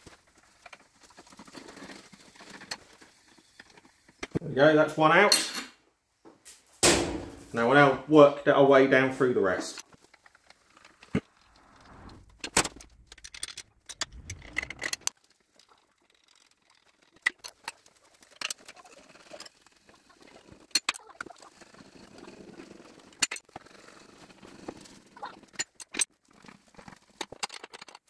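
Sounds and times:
metal scraping: 10.2s - 15.1s
metal clinks and knocks: 12.4s - 15.1s.

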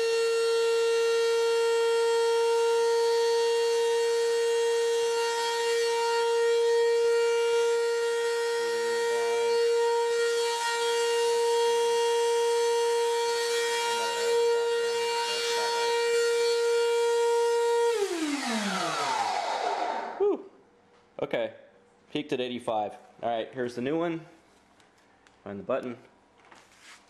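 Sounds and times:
floor cleaner motor whining: 0.0s - 20.4s.

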